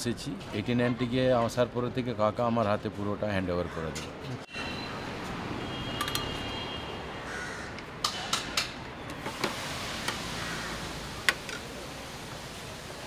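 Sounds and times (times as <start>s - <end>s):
street background noise: 0.0s - 13.0s
crows cawing: 7.2s - 7.9s, 10.4s - 10.9s.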